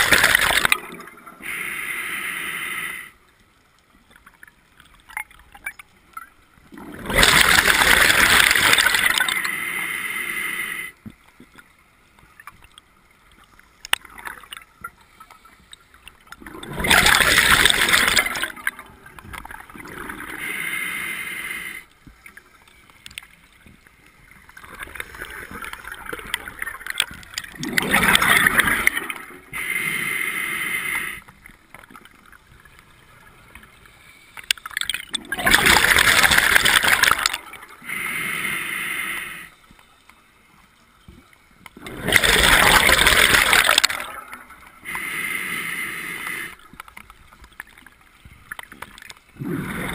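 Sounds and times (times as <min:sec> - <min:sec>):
scuba regulator breathing bubbles: 0:00.0 - 0:03.2, 0:06.8 - 0:11.0, 0:16.4 - 0:18.9, 0:19.7 - 0:21.9, 0:24.6 - 0:31.3, 0:35.2 - 0:39.6, 0:41.8 - 0:46.8, 0:49.4 - 0:49.9.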